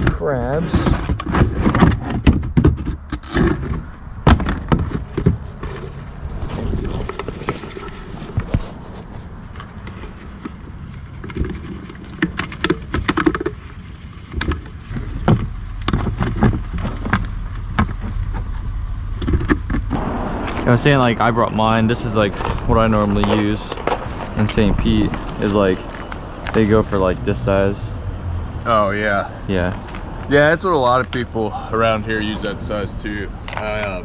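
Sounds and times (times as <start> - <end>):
plastic buckets clattering: 0.0 - 19.9.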